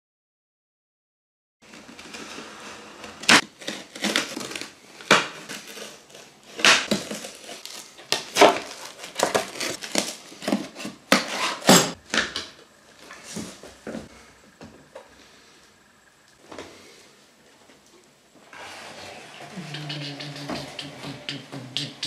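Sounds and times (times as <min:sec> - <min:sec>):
cardboard rustling: 0:01.6 - 0:11.8.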